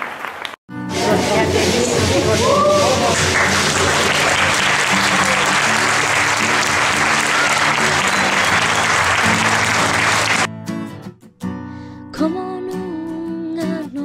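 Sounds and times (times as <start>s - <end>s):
audience applauding: 0.0s - 10.5s
background music: 0.7s - 10.5s.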